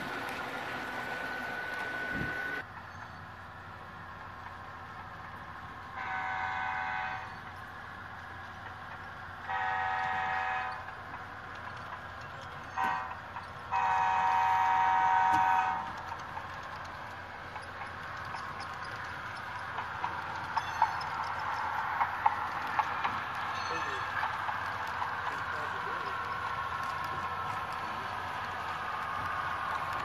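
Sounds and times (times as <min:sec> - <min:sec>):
steady locomotive running sound: 0:00.0 - 0:30.0
model locomotive horn blasts: 0:05.9 - 0:07.4, 0:09.4 - 0:10.9, 0:12.8 - 0:16.1.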